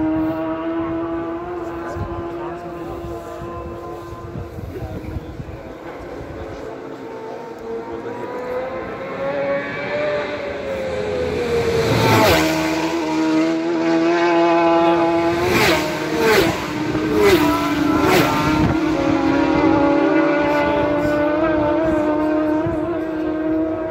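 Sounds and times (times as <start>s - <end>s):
racing motorcycles passing: 0.0s - 23.9s.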